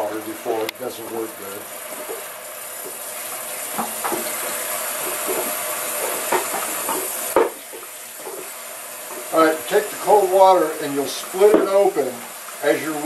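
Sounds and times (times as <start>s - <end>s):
water spraying into steel sink: 0.0s - 13.0s
small knocks in sink: 3.8s - 4.3s, 5.0s - 8.5s.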